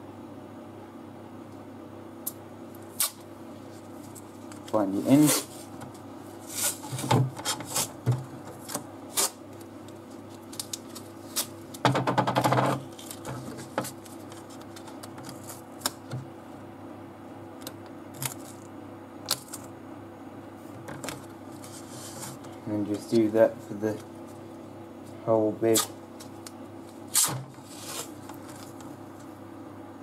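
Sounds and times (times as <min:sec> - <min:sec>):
faint steady hum: 0:00.0 - 0:30.0
tape ripping off roll: 0:27.1 - 0:28.7.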